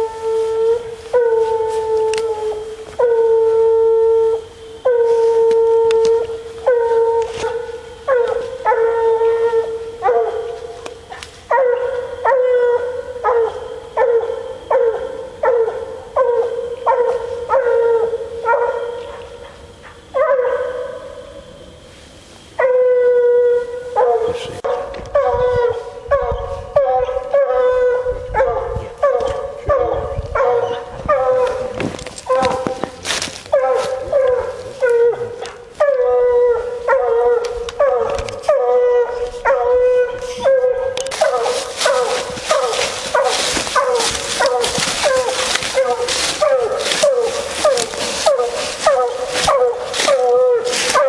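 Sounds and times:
dog baying: 0:33.5 - 0:51.0.

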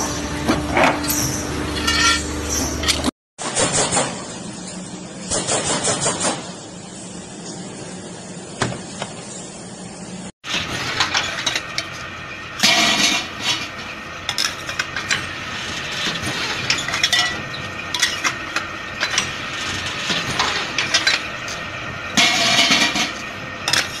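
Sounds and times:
metal clanking and scraping: 0:00.4 - 0:03.1, 0:10.5 - 0:12.0, 0:12.6 - 0:24.0.

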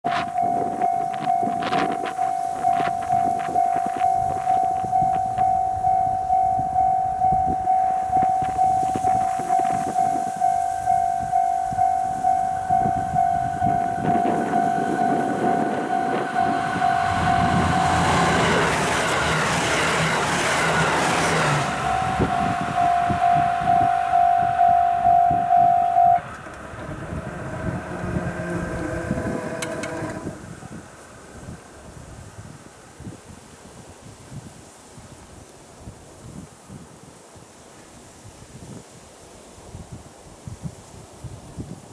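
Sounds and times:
level crossing bell ringing: 0:00.1 - 0:18.7, 0:21.5 - 0:26.2
diesel train passing: 0:00.3 - 0:30.6.

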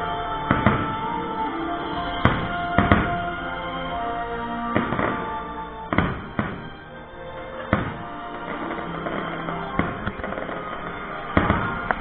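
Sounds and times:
music soundtrack playing: 0:00.0 - 0:12.0
fireworks bursting bangs: 0:00.4 - 0:01.2, 0:02.1 - 0:03.3, 0:04.7 - 0:06.8, 0:07.6 - 0:12.0.

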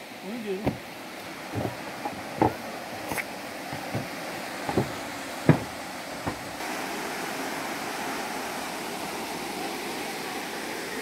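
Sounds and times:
waterfall rushing: 0:00.0 - 0:11.0
footsteps thumping on steps: 0:00.6 - 0:00.8, 0:01.5 - 0:06.6.

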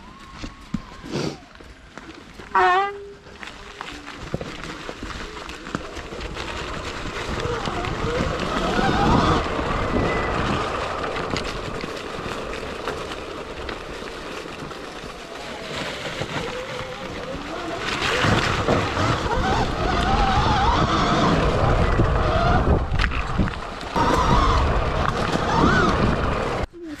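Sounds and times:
electric dirt bike motor whine: 0:05.8 - 0:26.7
wind buffeting microphone: 0:06.5 - 0:12.5, 0:16.2 - 0:26.7.

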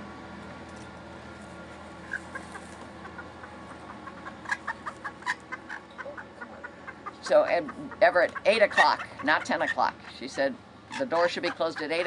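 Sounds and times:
hens clucking: 0:01.6 - 0:12.0.

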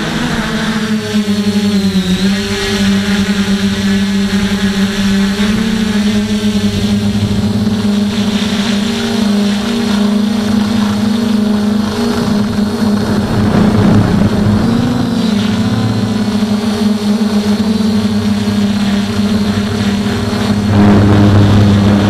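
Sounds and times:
quadcopter buzzing hum: 0:00.0 - 0:22.0
rushing noise: 0:11.8 - 0:17.5.

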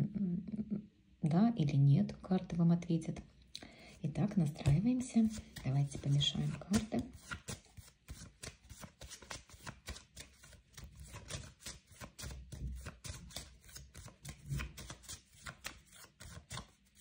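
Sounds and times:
cards being shuffled: 0:04.4 - 0:17.0.

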